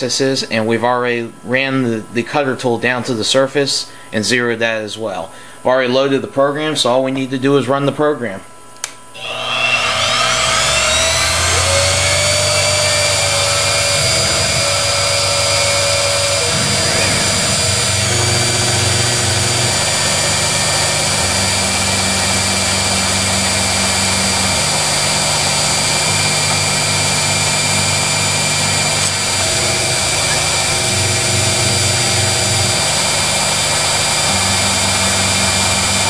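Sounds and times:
mill spindle high whine: 9.1 - 36.0
axis motors humming: 9.2 - 36.0.

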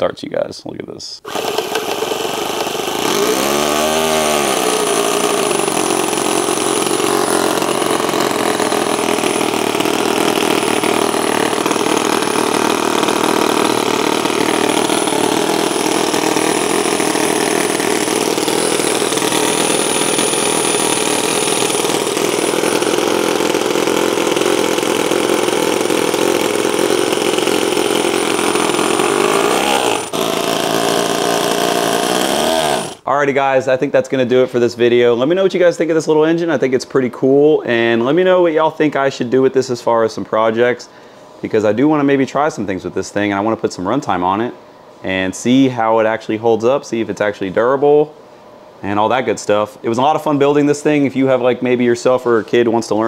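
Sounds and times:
electric starter spinning: 1.2 - 33.1
model engine running: 1.3 - 33.0.

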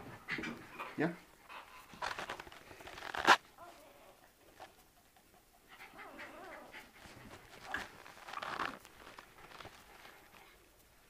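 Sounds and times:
dog panting: 4.6 - 8.1
dog whining: 5.8 - 6.9.

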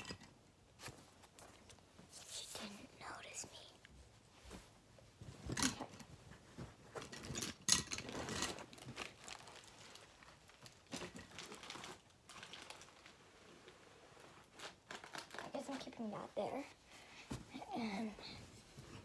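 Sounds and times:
rustling and crinkling: 0.0 - 19.0.

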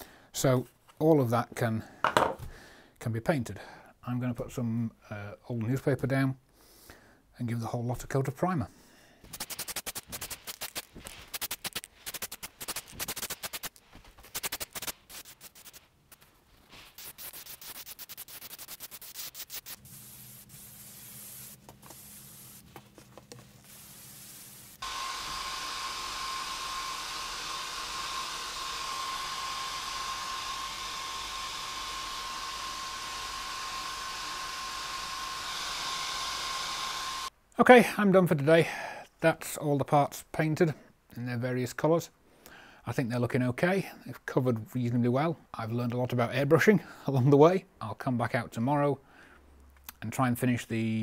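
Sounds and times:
aerosol can rattling and hissing: 9.2 - 24.9
airbrush hissing: 9.2 - 37.3
air compressor humming: 19.6 - 37.3
hair dryer whining: 19.9 - 37.3.

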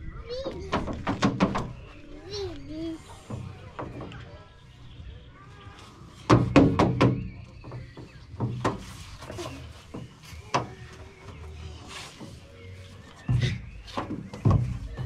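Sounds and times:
hollow knocks in playground tunnel: 6.3 - 11.0, 13.3 - 15.0.

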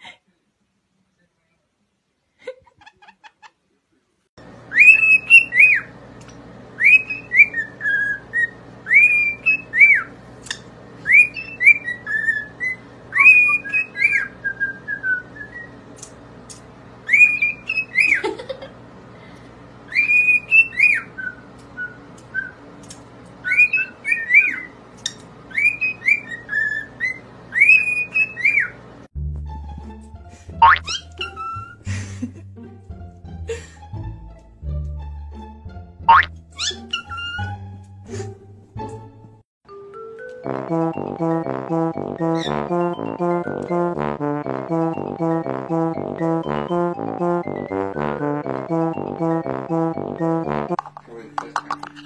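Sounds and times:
cockatiels whistling a tune: 4.7 - 5.9, 6.8 - 10.1, 11.0 - 15.8, 17.1 - 18.2, 19.9 - 22.6, 23.4 - 24.7, 25.5 - 28.8, 30.8 - 31.8, 36.6 - 37.5.

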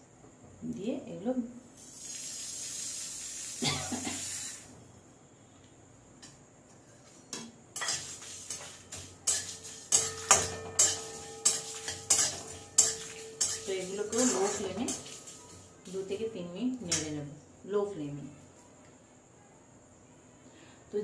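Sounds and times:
spices rattling into pan: 7.7 - 16.2
metal spatula scraping pan: 7.8 - 15.7.

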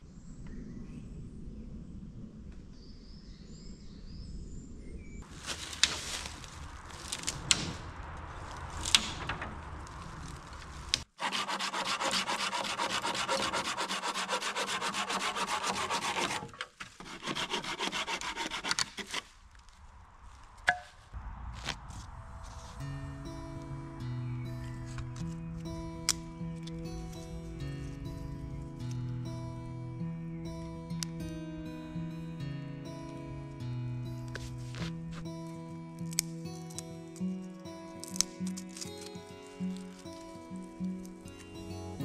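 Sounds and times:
sawing wood: 11.1 - 19.3.

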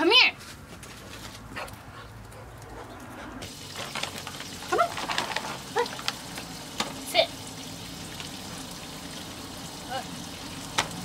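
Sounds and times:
plastic pouch crinkling: 3.5 - 6.6.

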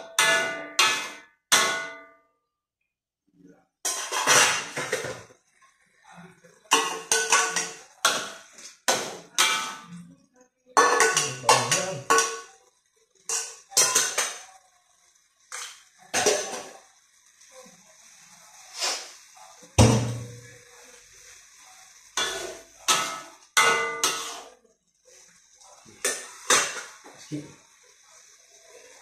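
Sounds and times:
metal spoon clanking on steel bowls: 3.9 - 5.3, 6.7 - 10.0, 10.8 - 12.6, 13.3 - 14.5, 22.2 - 24.5.

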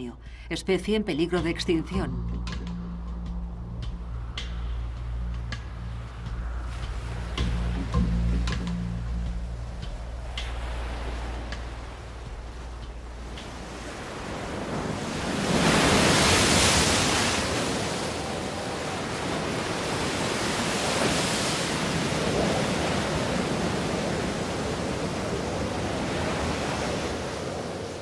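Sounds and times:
surf breaking on rocky shore: 9.6 - 28.0.

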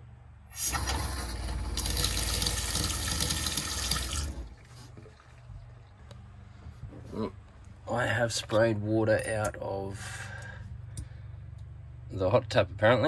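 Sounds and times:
water running from tap into steel sink: 0.6 - 4.5.

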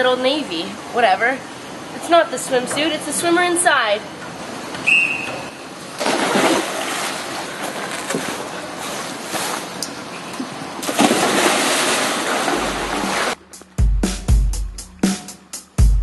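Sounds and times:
pool water splashing: 2.0 - 13.5.

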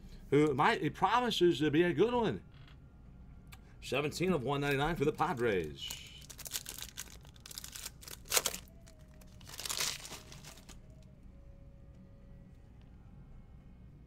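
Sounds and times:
foil wrapper crinkling and tearing: 5.2 - 11.0.

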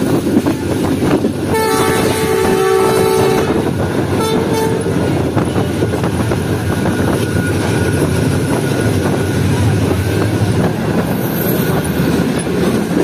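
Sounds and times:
moving train rumble: 0.0 - 13.0
locomotive horn blasts: 1.5 - 5.1.

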